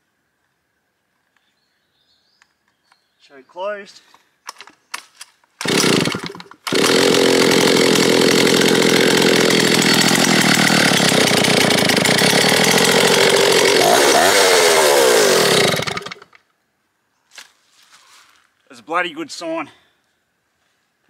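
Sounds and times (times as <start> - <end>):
two-stroke chainsaw engine running: 5.6 - 16.4.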